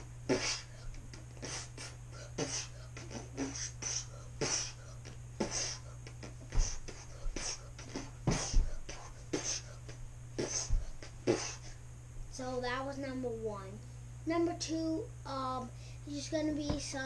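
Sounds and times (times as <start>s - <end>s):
boy making punch sounds with mouth: 0.3s - 11.7s, 16.6s - 17.0s.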